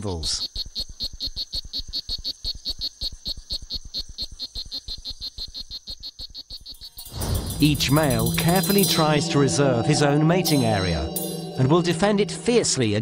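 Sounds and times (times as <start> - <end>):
frogs chirping: 0.0 - 7.5
steady high tone: 7.0 - 13.0.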